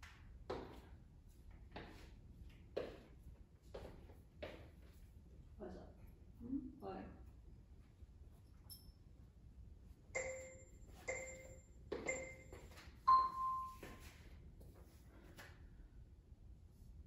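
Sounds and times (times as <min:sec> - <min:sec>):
long timer beep: 0:10.2 - 0:13.9
short timer beeps: 0:10.2 - 0:14.0.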